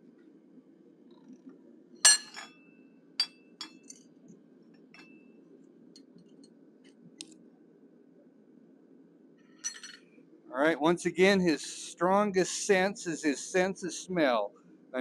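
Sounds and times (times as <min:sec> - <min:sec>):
low steady hum: 0:00.0 - 0:15.0
steel clinking on anvil: 0:02.1 - 0:02.6.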